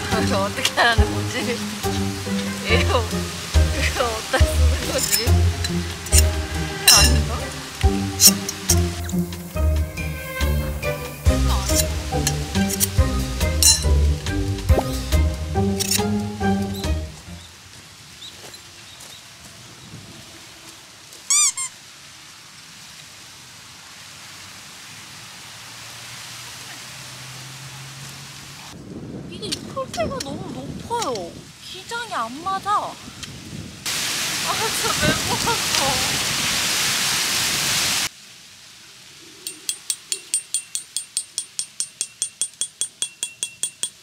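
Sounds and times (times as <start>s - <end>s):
wind noise: 19.3s - 20.6s, 28.6s - 38.0s
short squeaks: 21.2s - 21.8s
light ticks with ringing tone: 39.4s - 44.0s.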